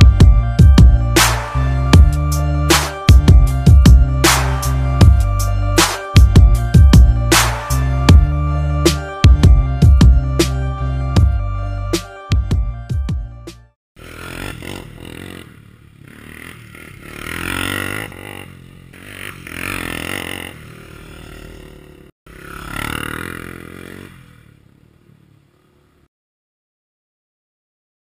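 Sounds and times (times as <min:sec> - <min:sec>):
engine revving: 0:00.0 - 0:11.4, 0:14.0 - 0:26.1.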